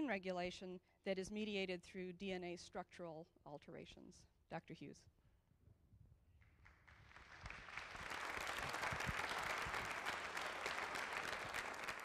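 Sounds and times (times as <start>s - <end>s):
audience applauding: 6.6s - 12.0s.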